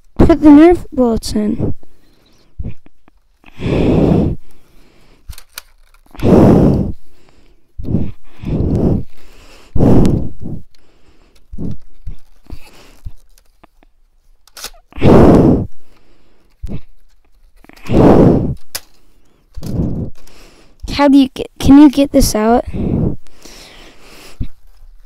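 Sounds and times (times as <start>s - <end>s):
sharp plastic clicks: 5.3s - 6.2s, 10.1s - 14.8s, 18.5s - 20.9s.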